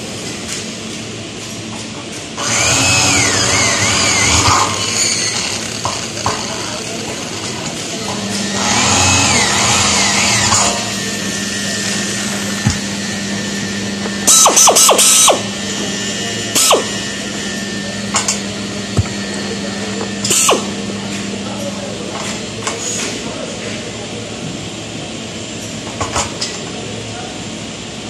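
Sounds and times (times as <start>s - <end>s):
power drill boring into metal: 2.4s - 6.6s, 8.4s - 13.3s, 13.9s - 19.4s, 20.2s - 20.8s
drill spinning bursts: 2.4s - 7.0s, 8.2s - 21.0s
steady low hum: 2.6s - 22.6s.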